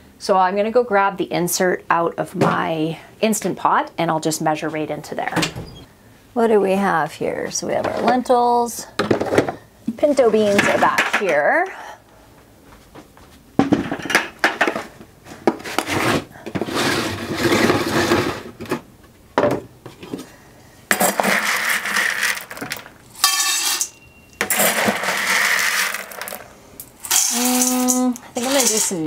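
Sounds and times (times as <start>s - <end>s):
dry beans rattling into metal pot: 20.9s - 29.0s.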